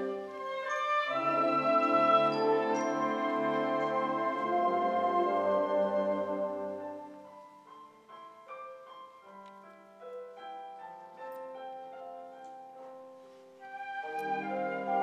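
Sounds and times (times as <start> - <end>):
wind band playing: 0.0 - 7.5, 13.6 - 15.0
digital piano playing slow notes: 6.2 - 14.3.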